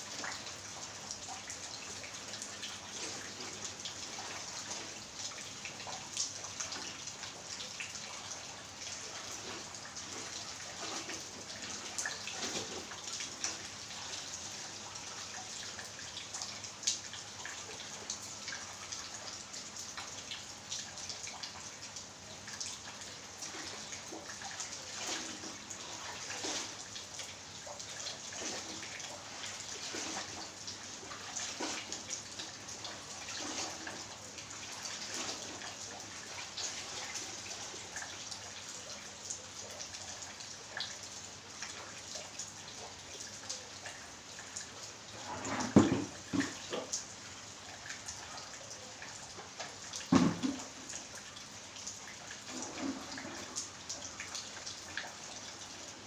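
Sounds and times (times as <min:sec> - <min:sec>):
light rain pattering: 0:00.0 - 0:56.0
plastic bucket of water tipping over: 0:50.1 - 0:50.6.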